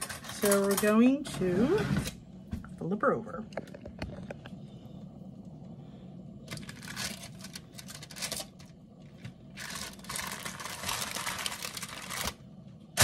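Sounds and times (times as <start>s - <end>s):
aluminium foil crinkling: 0.0s - 1.2s, 6.4s - 13.0s.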